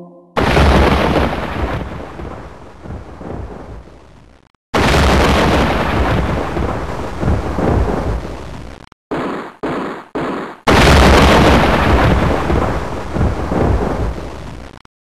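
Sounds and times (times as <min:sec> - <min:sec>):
deep earthquake rumble: 0:00.5 - 0:04.3, 0:05.0 - 0:08.7.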